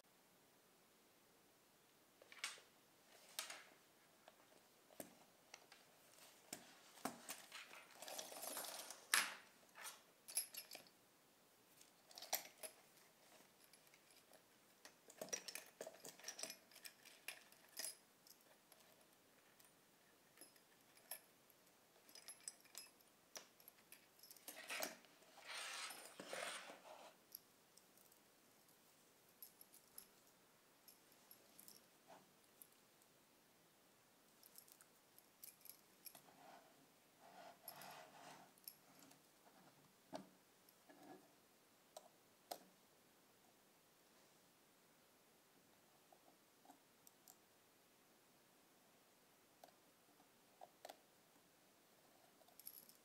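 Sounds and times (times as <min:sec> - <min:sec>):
tool pouch rustling: 0:04.9 - 0:10.9, 0:24.0 - 0:27.2, 0:35.6 - 0:38.6.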